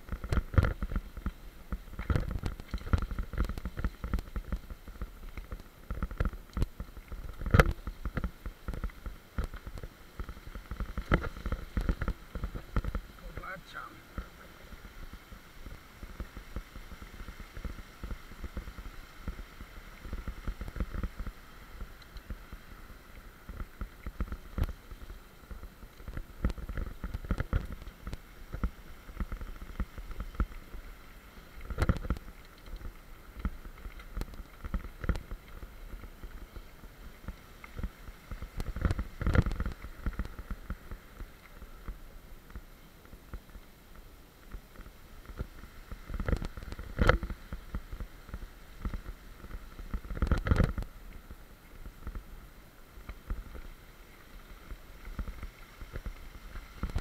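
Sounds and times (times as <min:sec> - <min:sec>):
bike rattling over bumps: 0:00.0 - 0:53.8
wind on the microphone: 0:54.4 - 0:57.0.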